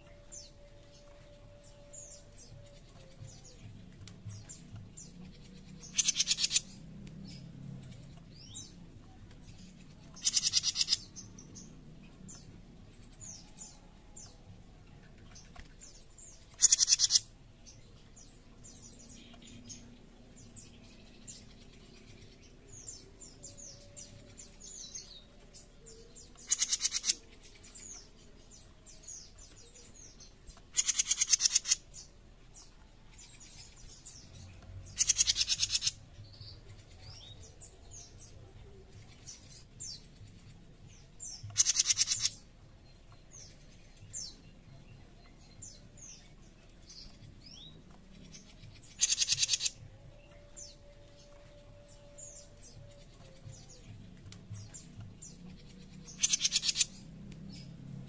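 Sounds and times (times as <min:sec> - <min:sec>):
bird rasping rattle calls: 0:30.7 - 0:31.8, 0:41.6 - 0:42.3
faint bird chirps: 0:30.7 - 0:31.8, 0:48.9 - 0:53.8.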